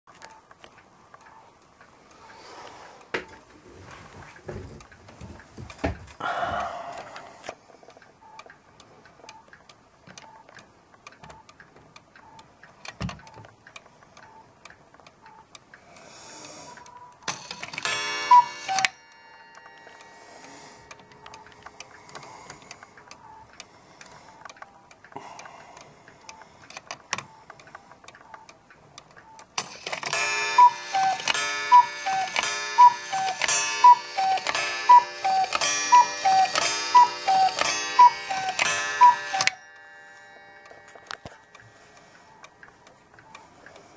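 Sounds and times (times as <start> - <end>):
clock ticking: 0.1 - 43.9
cuckoo call: 17.8 - 18.9, 30.1 - 40.4.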